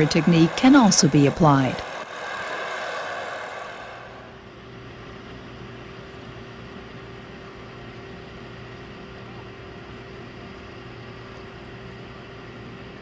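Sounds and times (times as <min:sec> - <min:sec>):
bright rushing noise: 0:00.0 - 0:04.9
piling rig engine humming: 0:00.0 - 0:06.4.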